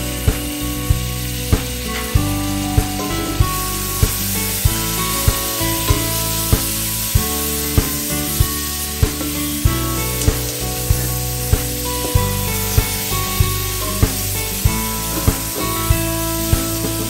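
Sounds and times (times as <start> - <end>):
background music with beat: 0.0 - 17.0
meat sizzling in hot oil: 0.0 - 17.0.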